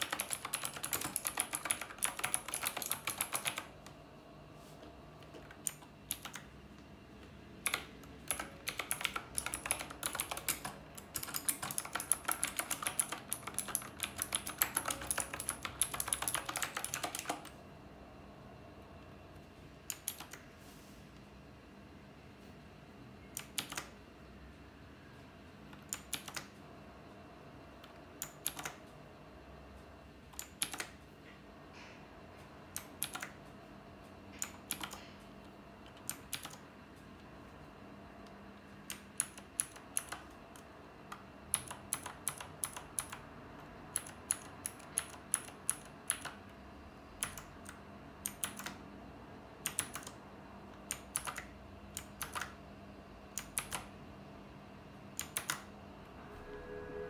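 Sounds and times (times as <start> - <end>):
mechanical keyboard key clicks: 5.5 - 6.4, 23.4 - 23.9, 25.7 - 26.5, 32.8 - 33.3, 34.4 - 35.0, 41.5 - 43.2, 43.9 - 46.4, 47.2 - 48.8, 49.6 - 50.2, 50.9 - 52.6, 53.4 - 53.9, 55.2 - 55.6.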